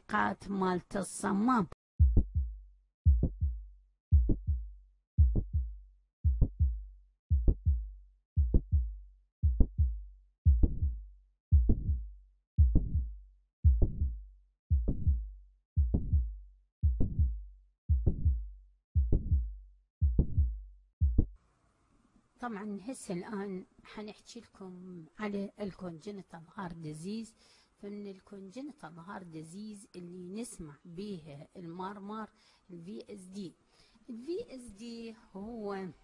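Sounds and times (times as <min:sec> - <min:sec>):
heart murmur: 0:02.0 - 0:02.5, 0:03.1 - 0:04.6, 0:05.2 - 0:05.7, 0:06.3 - 0:07.8, 0:08.4 - 0:10.9, 0:11.5 - 0:12.0, 0:12.6 - 0:13.1, 0:13.7 - 0:14.1, 0:14.7 - 0:15.2, 0:15.8 - 0:18.4, 0:19.0 - 0:21.3
heartbeat through stethoscope: 0:02.0 - 0:21.4.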